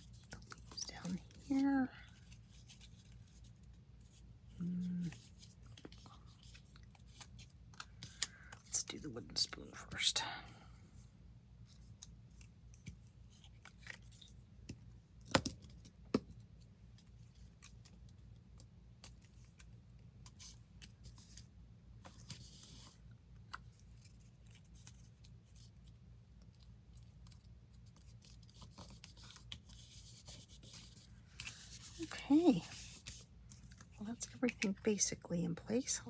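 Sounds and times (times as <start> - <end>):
paper rustling and rubbing: 0.0 - 4.3, 19.0 - 23.0, 27.0 - 34.7.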